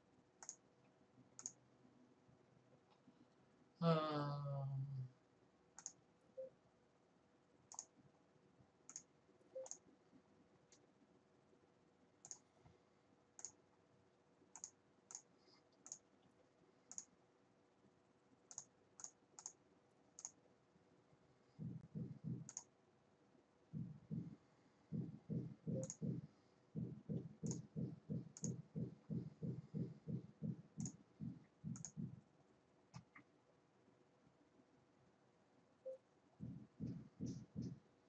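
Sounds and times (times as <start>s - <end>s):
soft low muffled sounds: 0.0s - 38.0s
computer mouse clicking: 0.4s - 0.7s, 1.4s - 1.6s, 5.8s - 6.0s, 7.7s - 8.0s, 8.9s - 9.8s, 12.2s - 12.5s, 13.4s - 13.6s, 14.5s - 16.1s, 16.9s - 17.1s, 18.5s - 19.6s, 20.2s - 20.4s, 22.3s - 22.7s, 25.7s - 26.2s, 27.4s - 28.7s, 30.8s - 31.0s, 31.7s - 32.1s.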